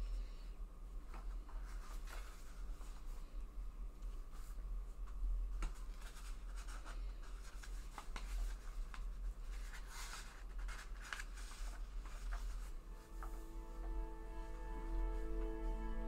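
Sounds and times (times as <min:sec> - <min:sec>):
low hum: 0:12.6 - 0:16.0.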